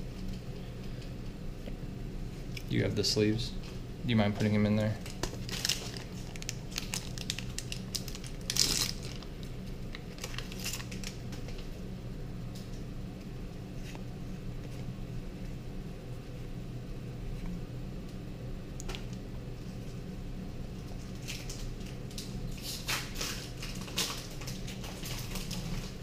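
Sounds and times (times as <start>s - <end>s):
low hum: 0.0s - 22.6s
foil wrappers and cards crinkling: 4.4s - 11.7s, 20.8s - 26.0s.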